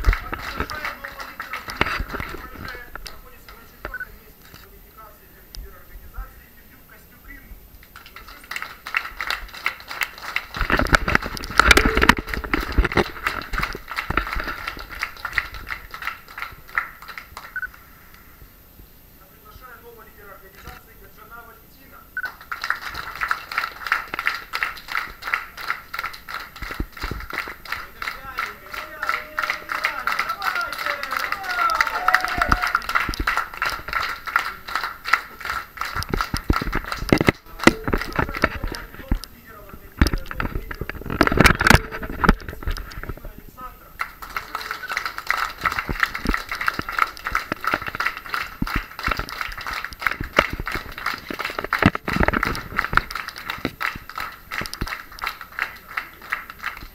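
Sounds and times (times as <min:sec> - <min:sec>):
crowd applause: 0:00.0 - 0:03.8, 0:07.9 - 0:17.9, 0:22.3 - 0:39.2, 0:44.0 - 0:56.9
small group clapping: 0:00.0 - 0:04.7, 0:07.8 - 0:18.3, 0:22.2 - 0:56.9.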